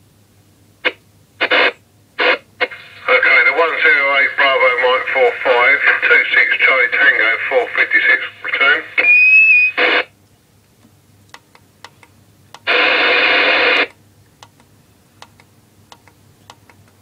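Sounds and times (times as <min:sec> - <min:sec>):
faint steady hum: 0:00.0 - 0:17.0
hissy radio static: 0:00.8 - 0:10.1, 0:12.6 - 0:14.0
radio channel button clicks: 0:11.3 - 0:12.8, 0:13.8 - 0:17.0.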